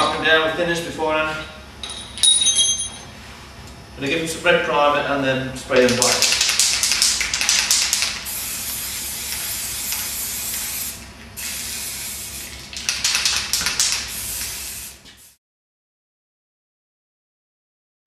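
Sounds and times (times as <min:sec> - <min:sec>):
spray can rattling when shaken: 0:05.8 - 0:15.4
aerosol spray can hissing: 0:06.1 - 0:15.4.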